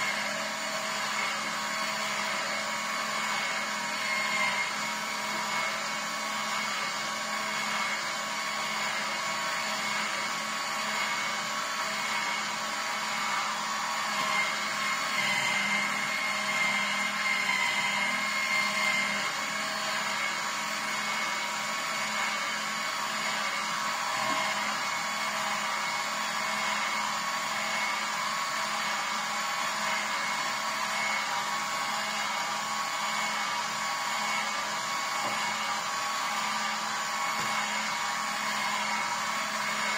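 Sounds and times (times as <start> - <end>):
juicer motor hum: 0.0 - 39.9.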